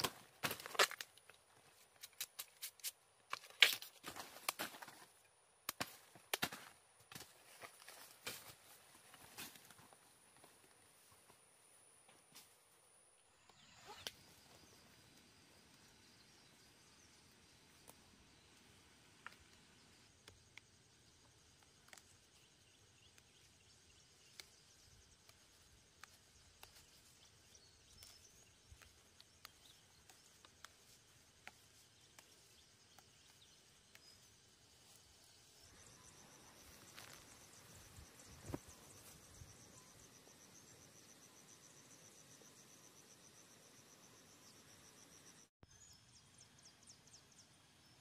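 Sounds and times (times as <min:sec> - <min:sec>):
faint insect chirping: 0:06.6 - 0:48.0.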